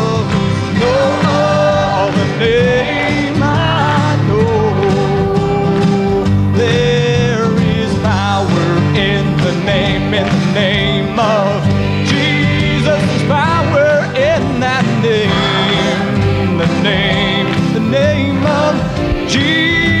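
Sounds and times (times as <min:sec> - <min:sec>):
acoustic guitar: 0:00.0 - 0:20.0
youth choir singing: 0:00.6 - 0:05.2, 0:11.8 - 0:13.4, 0:15.2 - 0:19.8.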